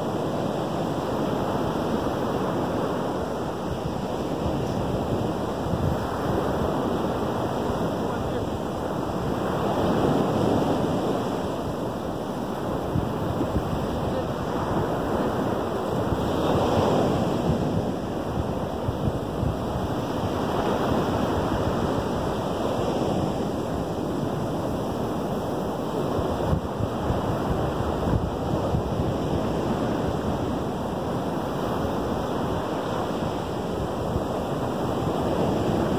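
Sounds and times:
waves washing up a sandy beach: 0.0s - 35.9s.

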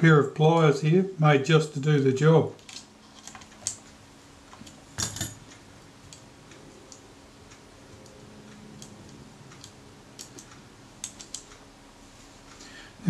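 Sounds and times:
faint clicks of small metal parts: 2.6s - 7.0s.

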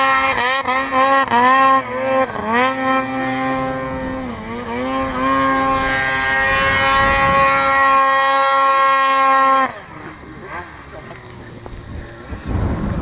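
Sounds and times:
snowmobile engine revving: 0.0s - 13.0s.

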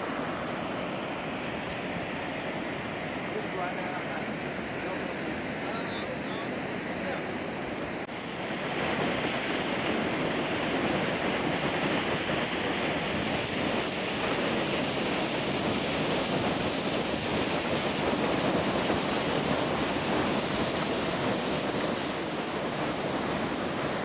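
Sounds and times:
river rapids rushing: 0.0s - 3.7s.

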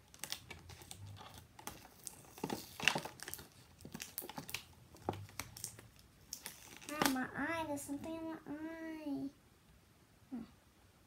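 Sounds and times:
plastic packaging crinkling: 0.0s - 7.2s.

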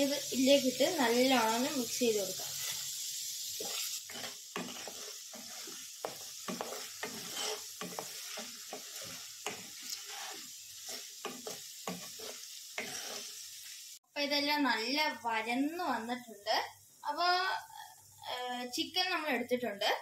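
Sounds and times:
vegetables sizzling in hot oil: 0.0s - 20.0s
spatula scraping a pan: 0.7s - 13.9s.

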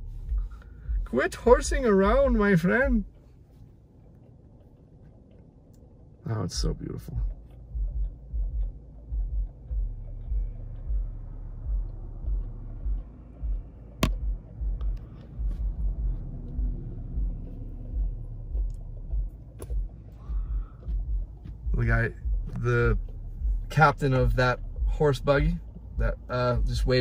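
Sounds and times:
car engine rumble in cabin: 0.0s - 27.0s.

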